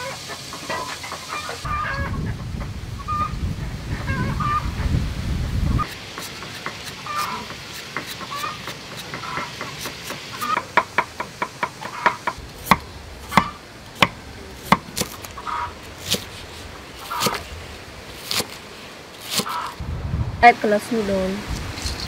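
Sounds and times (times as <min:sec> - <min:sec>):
peeler scraping a carrot: 0:05.8 - 0:10.6, 0:14.5 - 0:17.5, 0:18.2 - 0:19.8
knife chopping on wooden block: 0:05.9 - 0:15.3.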